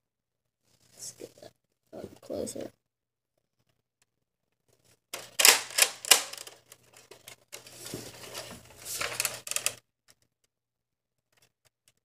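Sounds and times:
plastic toy shotgun handling: 5.2 - 9.8.

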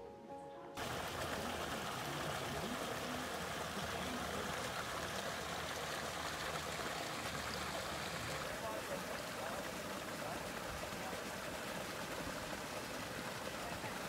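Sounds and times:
running water trickling: 0.8 - 14.0.

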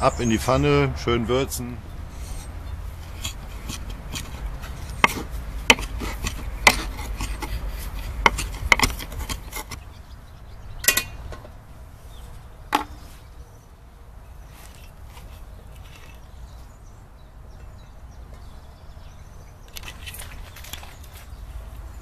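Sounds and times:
knife chopping on wooden board: 3.2 - 9.8.

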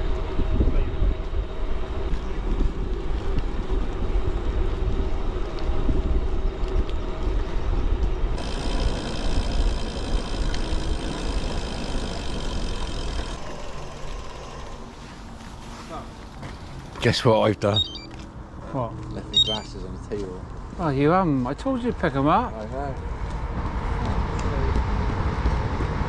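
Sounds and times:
thin high-pitched whine: 8.4 - 14.6.

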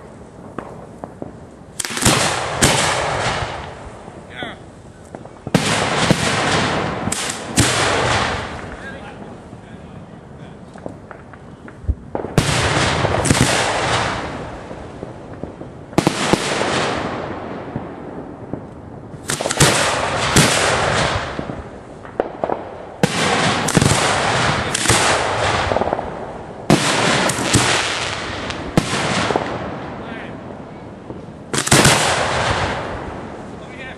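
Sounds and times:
fireworks bangs and crackling: 0.0 - 33.9.

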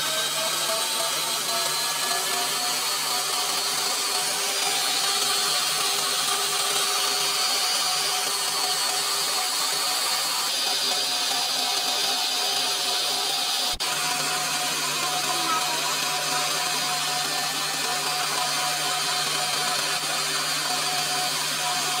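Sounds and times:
electric stand mixer whirring: 0.0 - 22.0.

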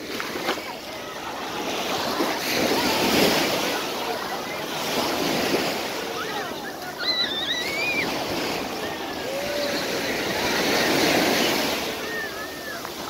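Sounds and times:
surf breaking on a beach: 0.0 - 13.0
faint high-pitched cries: 6.1 - 10.4, 11.3 - 13.0.

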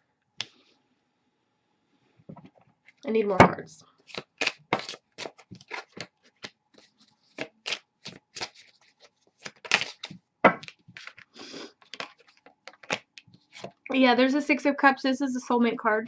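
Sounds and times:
cards rustling: 4.0 - 13.9
cards flicking and snapping: 4.1 - 13.7.

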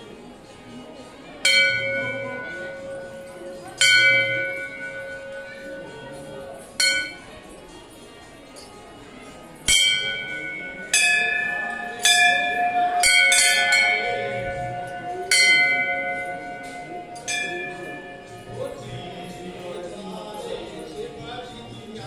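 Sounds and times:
brass temple bells clanging: 1.4 - 7.6, 9.7 - 19.8.

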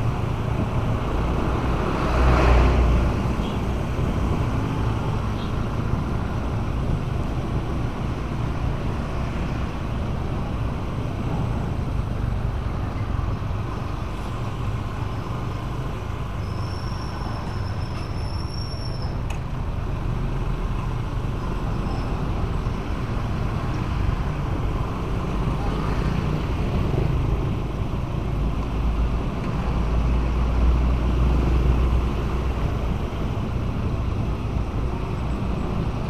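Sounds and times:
city traffic: 0.0 - 36.0
motorcycle engine and road rumble: 0.0 - 36.0.

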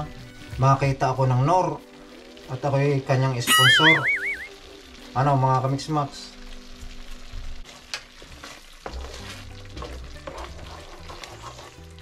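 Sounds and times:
sauce sizzling in a frying pan: 0.0 - 12.0
wooden spoon scraping a pan: 7.6 - 12.0.

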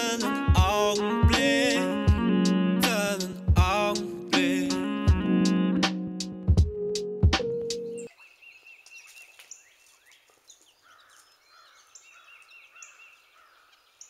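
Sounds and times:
music with a beat: 0.0 - 8.0
birds chirping: 6.8 - 14.0.

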